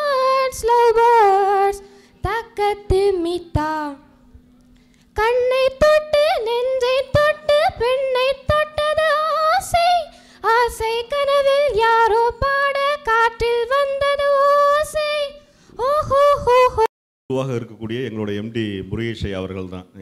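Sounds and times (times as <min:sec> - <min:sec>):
girl singing into a microphone: 0:00.0 - 0:04.1, 0:05.1 - 0:16.9
faint electrical hum: 0:00.0 - 0:20.0.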